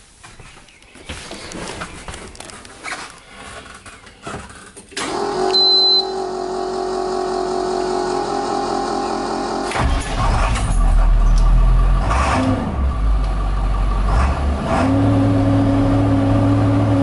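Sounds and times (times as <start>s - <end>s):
clicks and handling noises: 0.2s - 5.0s
engine starter whirring: 3.6s - 13.1s
short high beep: 5.5s - 6.2s.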